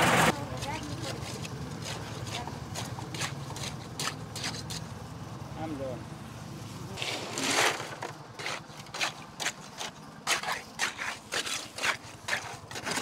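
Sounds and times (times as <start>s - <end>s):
wood scraping concrete: 0.3s - 4.9s, 6.9s - 13.0s
wet concrete sliding: 6.9s - 13.0s.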